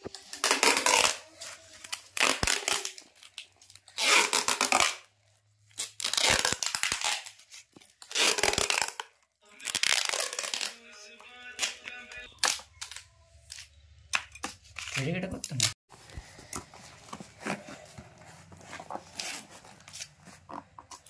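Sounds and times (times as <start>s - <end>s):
packing tape ripping off roll: 0.0s - 10.9s.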